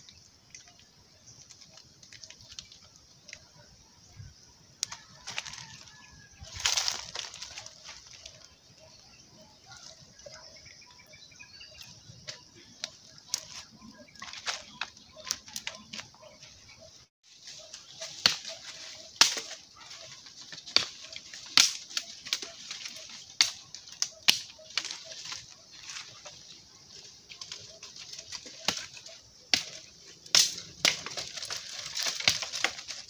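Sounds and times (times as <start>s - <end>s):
branches snapping in leaf litter: 4.8s - 8.5s, 17.5s - 26.5s, 27.3s - 33.0s
wood fire crackling: 29.6s - 33.0s.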